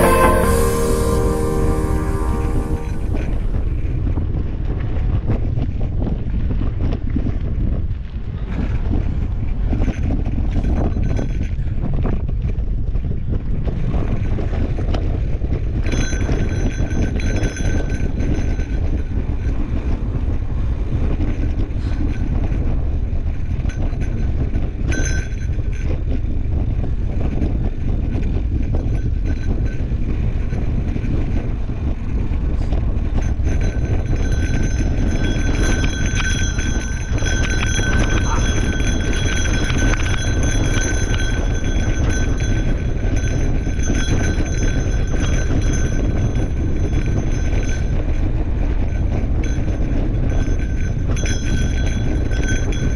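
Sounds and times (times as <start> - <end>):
high buzz: 0.0 - 3.6
wind rumbling on microphone: 1.4 - 52.9
bike rattles and clicks: 4.3 - 52.9.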